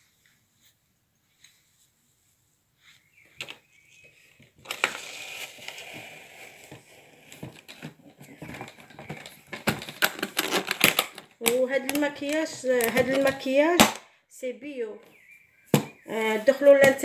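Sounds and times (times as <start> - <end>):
case rustling and scraping: 3.0 - 13.6.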